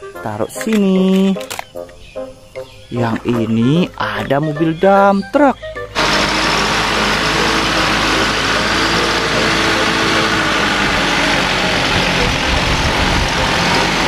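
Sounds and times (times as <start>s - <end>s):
truck engine on dirt track: 5.8s - 14.0s.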